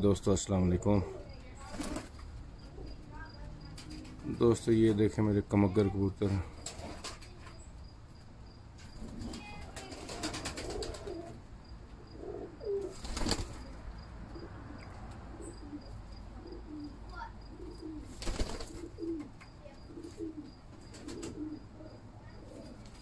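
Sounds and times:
wings flapping: 1.6s - 2.2s, 6.6s - 7.6s, 9.0s - 11.4s, 12.8s - 13.8s, 18.0s - 21.5s
pigeons cooing: 9.0s - 11.4s, 12.0s - 13.7s, 14.3s - 23.0s.

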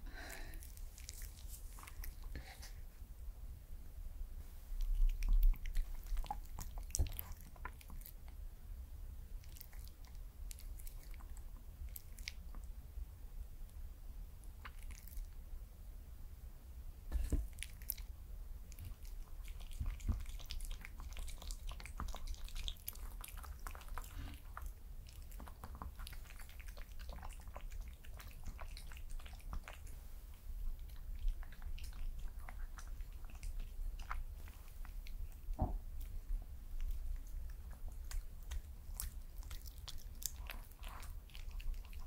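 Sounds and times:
dog chewing and lapping: 4.8s - 8.2s, 18.7s - 42.0s.

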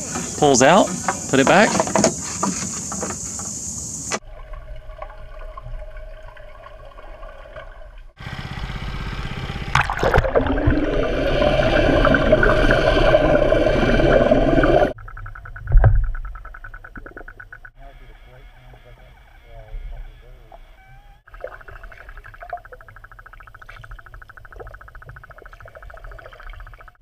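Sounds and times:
underwater boat motor whine: 3.0s - 22.3s
churning prop wash and bubbles: 4.2s - 8.2s, 9.6s - 17.8s, 21.2s - 27.0s.

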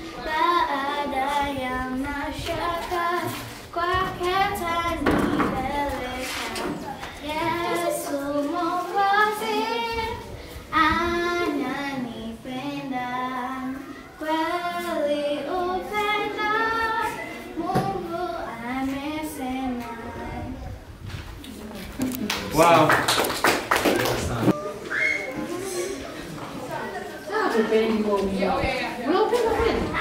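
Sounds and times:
child singing: 0.0s - 20.8s.

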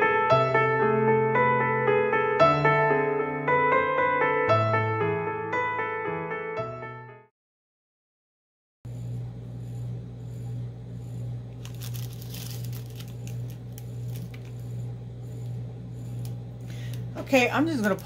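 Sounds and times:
steady low hum: 8.9s - 18.0s
plastic bags crinkling: 11.6s - 14.7s, 16.8s - 18.0s.

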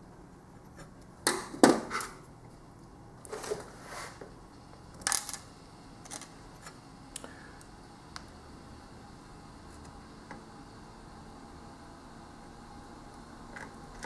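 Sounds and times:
soft scraping: 3.3s - 4.3s.

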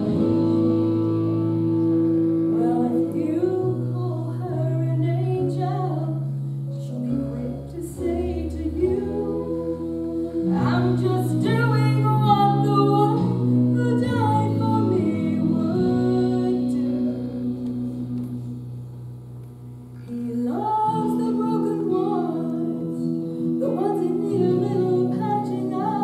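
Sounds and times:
long held low notes: 0.0s - 26.0s
woman singing into microphone: 2.4s - 18.5s, 20.0s - 26.0s.

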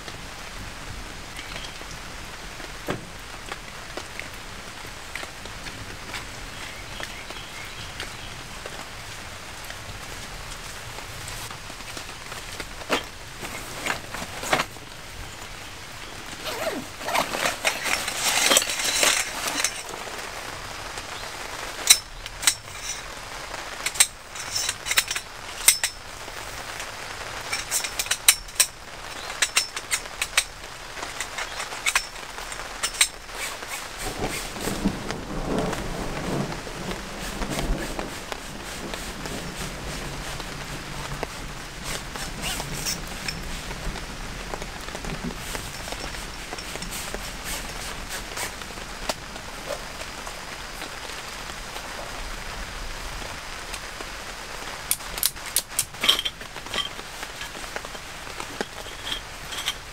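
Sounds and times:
steady rain falling: 0.0s - 59.9s
rustling handling noise: 11.2s - 15.5s, 16.1s - 20.2s, 23.8s - 35.0s, 44.9s - 50.2s, 55.0s - 59.9s
metal poles clicking together: 16.4s - 19.9s, 21.9s - 23.0s, 23.9s - 26.0s, 27.5s - 33.5s, 54.9s - 59.9s.

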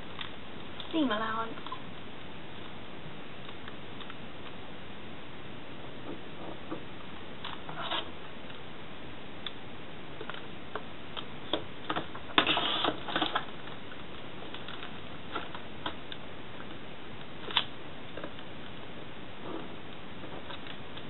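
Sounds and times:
paper rustling scrape: 7.7s - 8.1s, 12.4s - 13.4s.

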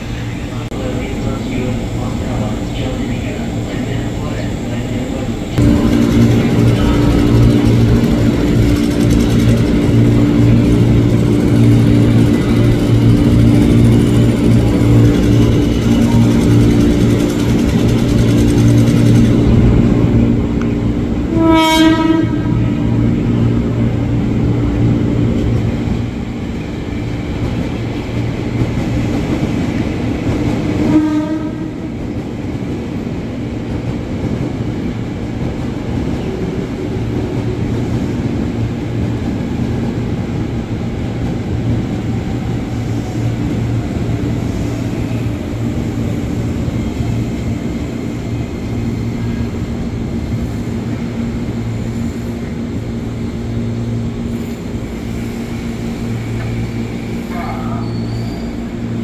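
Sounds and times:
train mechanical hum: 0.0s - 59.0s
train horn blast: 21.2s - 22.9s, 30.8s - 32.0s.

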